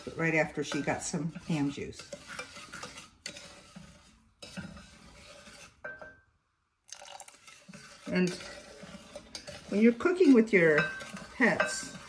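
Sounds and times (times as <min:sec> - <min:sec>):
wooden spoon scraping saucepan: 0:00.0 - 0:06.2, 0:07.0 - 0:12.0.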